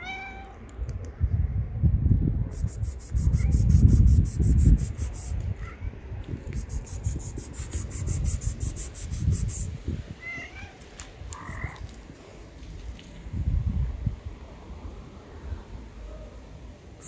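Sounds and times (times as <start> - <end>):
short high calls: 2.5 - 5.4.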